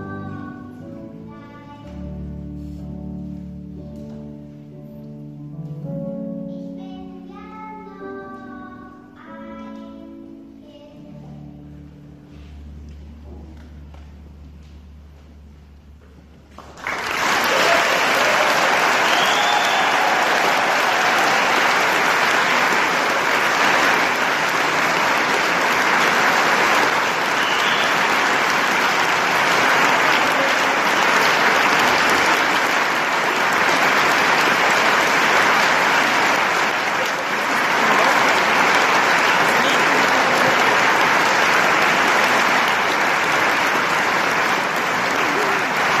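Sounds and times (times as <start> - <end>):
audience applauding: 16.5 - 46.0.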